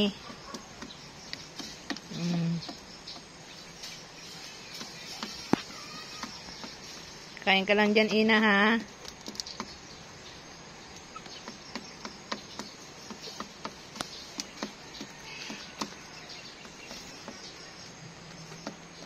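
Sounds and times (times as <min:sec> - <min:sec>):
background hiss: 0:00.0 - 0:19.0
beak tapping on wood: 0:00.3 - 0:03.4, 0:04.6 - 0:07.1, 0:08.8 - 0:09.8, 0:10.9 - 0:19.0.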